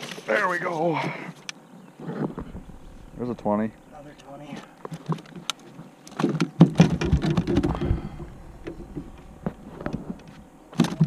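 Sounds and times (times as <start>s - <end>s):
gear clattering in aluminum boat: 6.1s - 11.0s.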